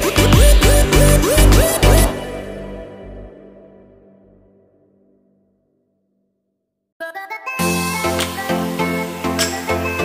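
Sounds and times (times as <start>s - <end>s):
background music: 0.0s - 5.3s, 7.0s - 10.0s.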